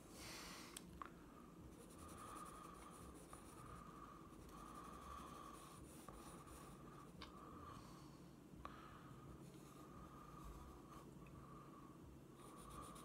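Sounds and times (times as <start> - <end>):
crayon scratching on paper: 1.7 - 7.2, 12.4 - 13.0.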